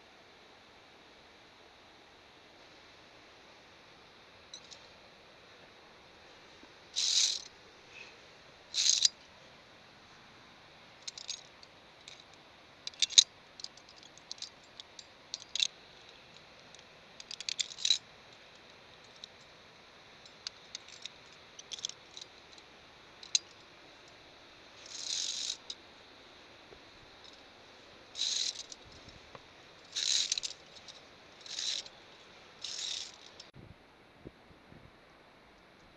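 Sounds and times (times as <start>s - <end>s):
carabiners clinking on steel cable: 4.5s - 4.9s, 7.0s - 7.5s, 8.7s - 9.2s, 11.0s - 19.5s, 20.2s - 23.6s, 24.8s - 25.8s, 28.1s - 29.2s, 29.8s - 32.0s, 32.6s - 33.5s
carabiner scraping on cable: 7.0s - 7.5s, 8.8s - 9.2s, 11.0s - 18.0s, 20.3s - 22.6s, 24.8s - 25.8s, 28.1s - 29.2s, 29.8s - 32.0s, 32.6s - 33.5s.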